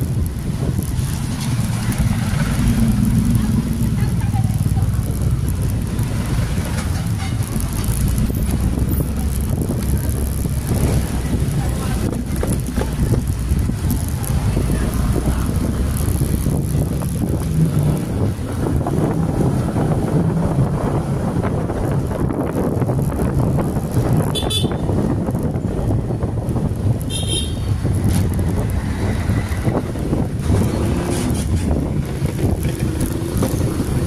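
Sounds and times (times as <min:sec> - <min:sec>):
motorcycle engine running: 0:00.0 - 0:20.2
road and wind noise: 0:00.0 - 0:34.0.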